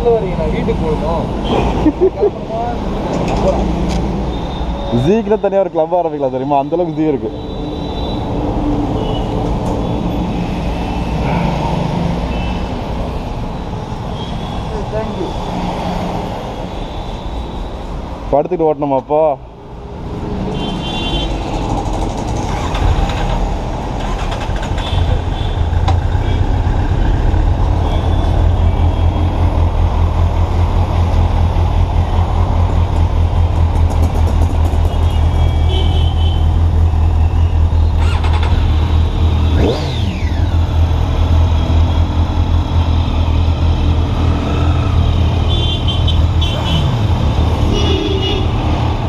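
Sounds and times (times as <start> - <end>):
street traffic: 0.0 - 49.0.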